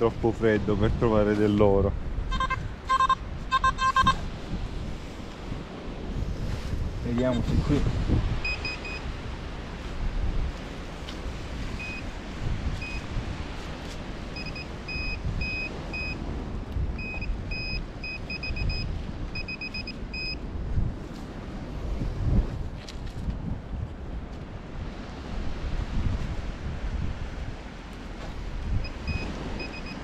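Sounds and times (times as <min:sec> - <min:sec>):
wind rumble on microphone: 0:00.0 - 0:30.0
metal detector short high beeps: 0:02.3 - 0:04.2, 0:08.4 - 0:09.0, 0:11.8 - 0:12.0, 0:12.8 - 0:13.0, 0:14.4 - 0:16.2, 0:17.0 - 0:20.4, 0:28.8 - 0:30.0.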